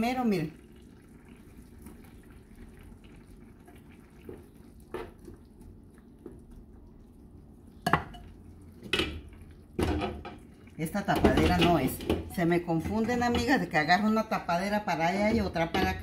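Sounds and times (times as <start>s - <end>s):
spoon stirring in a skillet: 2.9s - 13.7s.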